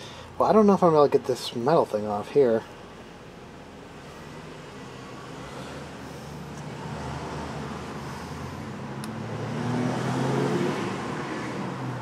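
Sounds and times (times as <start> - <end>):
traffic hum: 0.0 - 12.0
vehicle engine: 2.6 - 12.0.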